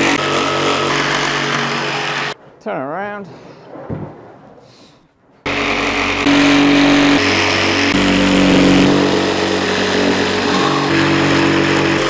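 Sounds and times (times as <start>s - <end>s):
jigsaw cutting wood: 0.0s - 2.4s, 5.5s - 12.0s.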